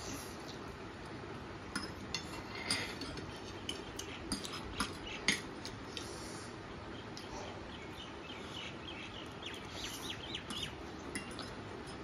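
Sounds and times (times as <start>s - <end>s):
forks clinking against plates: 1.7s - 5.8s, 10.5s - 12.0s.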